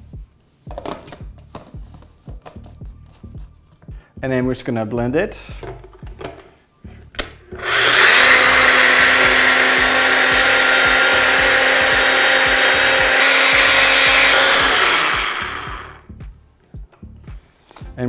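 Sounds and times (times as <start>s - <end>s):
blender motor running: 7.6s - 16.0s.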